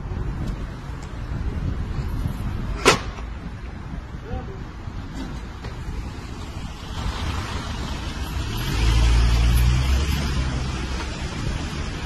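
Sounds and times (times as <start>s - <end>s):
traffic noise: 0.0s - 12.0s
vehicle engine passing by: 6.6s - 12.0s.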